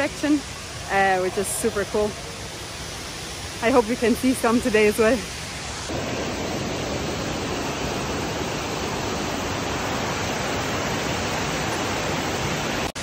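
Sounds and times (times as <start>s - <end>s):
waterfall and river rushing: 0.0s - 13.0s.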